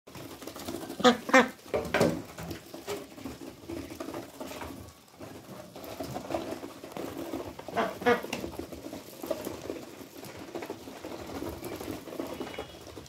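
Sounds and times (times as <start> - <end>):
duck bills pecking in grain: 0.1 - 13.0
ducks quacking: 0.7 - 1.7, 7.7 - 8.6.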